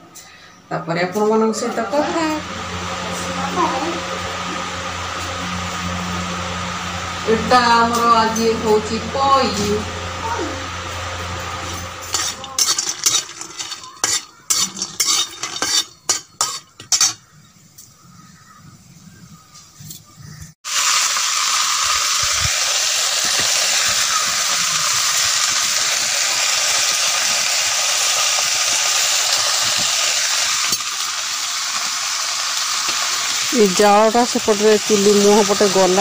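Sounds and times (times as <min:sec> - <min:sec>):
loud sizzling hiss: 0:01.5 - 0:16.8, 0:20.3 - 0:36.0.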